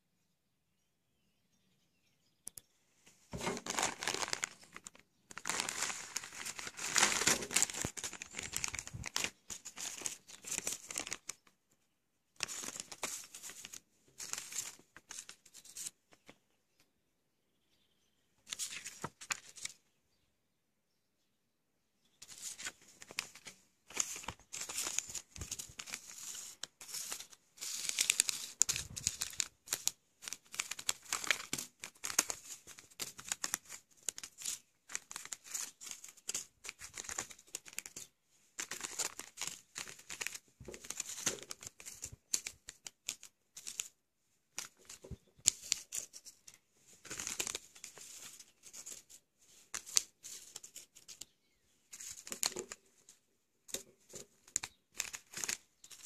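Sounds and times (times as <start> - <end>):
foil pouches crinkling: 3.3 - 11.5, 12.4 - 15.9, 22.2 - 44.0, 44.6 - 51.4, 52.0 - 53.0, 53.7 - 56.0.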